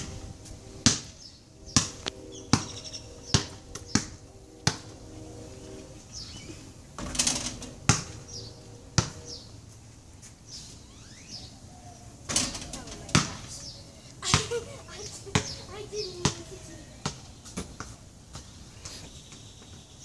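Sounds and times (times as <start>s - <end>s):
basketball bouncing on concrete: 0.8s - 1.1s, 1.8s - 4.8s, 7.9s - 8.1s, 9.0s - 9.2s, 13.1s - 13.4s, 17.0s - 17.9s.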